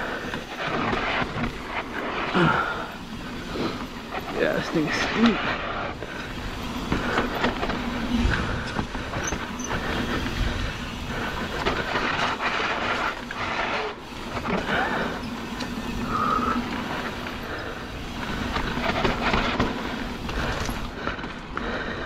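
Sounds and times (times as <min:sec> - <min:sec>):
bike tyres skidding on dirt: 0:00.0 - 0:22.0
person talking: 0:04.3 - 0:05.5
disc brakes squealing: 0:09.0 - 0:11.1, 0:14.3 - 0:19.3.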